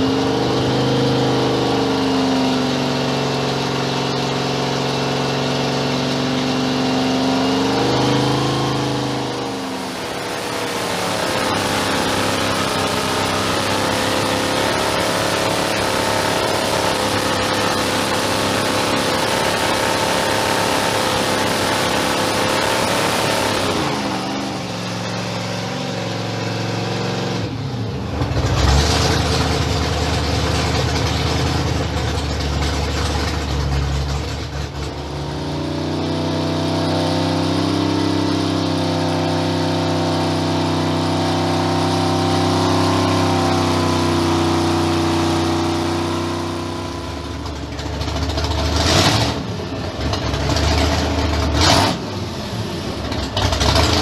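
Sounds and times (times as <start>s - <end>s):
supercharged engine running: 0.0s - 54.0s.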